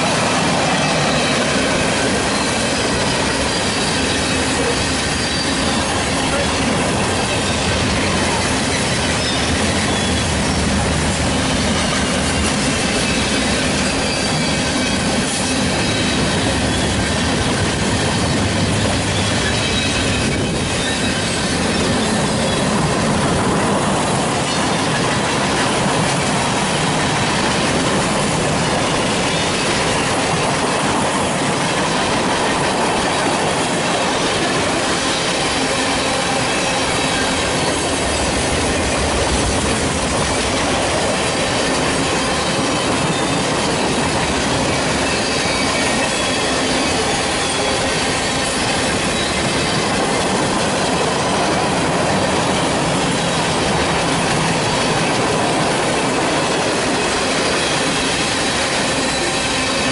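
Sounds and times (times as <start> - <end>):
train wheels rolling on track: 0.0 - 59.9
high-pitched wheel squeal: 0.8 - 6.5, 7.2 - 10.7, 13.0 - 17.2, 44.7 - 49.9.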